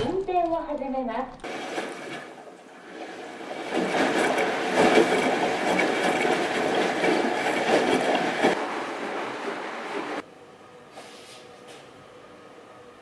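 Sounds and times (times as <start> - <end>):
washing machine churning: 1.4 - 10.3.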